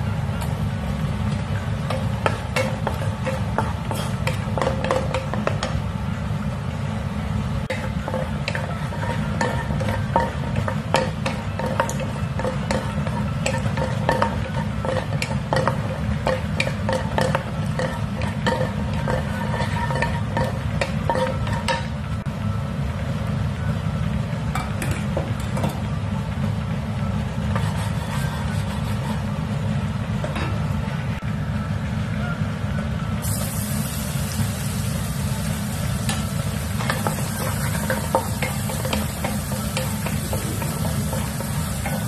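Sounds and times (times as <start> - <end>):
spatula scraping frying pan: 7.7 - 21.9, 27.5 - 29.3, 36.7 - 42.0.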